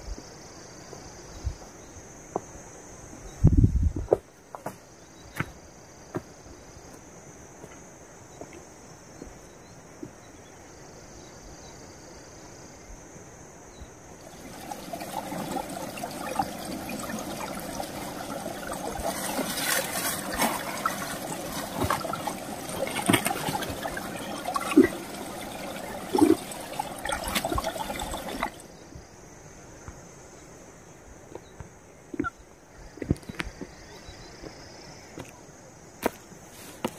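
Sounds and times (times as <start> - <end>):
water drips: 14.2 - 28.6
water trickling over rocks: 14.2 - 28.7.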